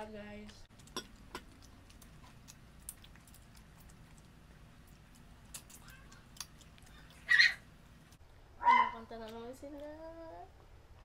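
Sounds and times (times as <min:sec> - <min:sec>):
low room hum: 0:00.0 - 0:11.0
chewing: 0:00.5 - 0:08.2.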